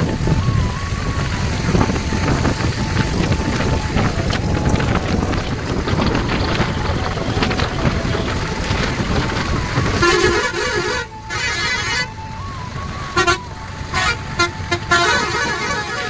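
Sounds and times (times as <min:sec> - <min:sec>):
truck road and wind noise: 0:00.0 - 0:16.0
vehicle horn honking: 0:10.0 - 0:12.1, 0:13.2 - 0:16.0.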